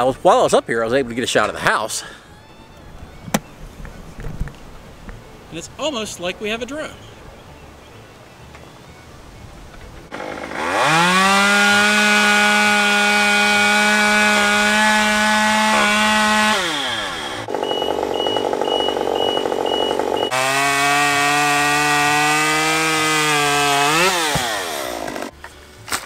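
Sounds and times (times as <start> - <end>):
chainsaw revving: 10.1 - 25.3
chainsaw cutting tree trunk: 10.1 - 26.0
fast high beeping: 17.6 - 20.4.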